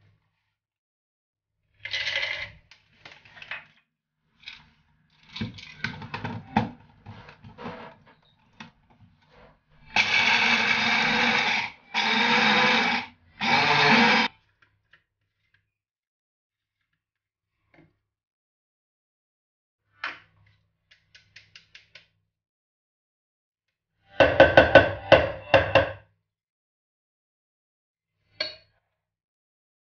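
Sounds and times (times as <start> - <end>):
blender motor grinding nuts: 9.9 - 14.3.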